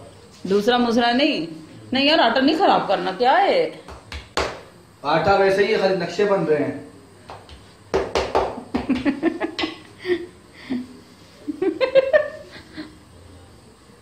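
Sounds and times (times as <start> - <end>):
person laughing: 8.9 - 13.0.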